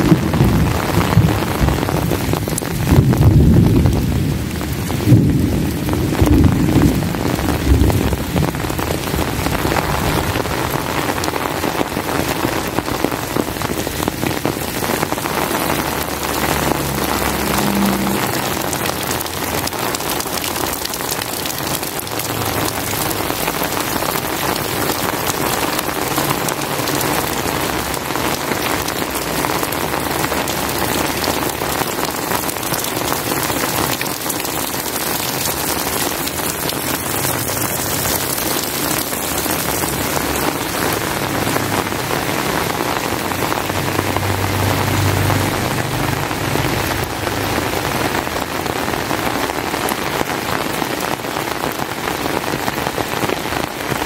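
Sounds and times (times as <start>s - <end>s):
low thunder rumble: 0.0s - 11.2s
heavy rain pattering: 0.0s - 54.0s.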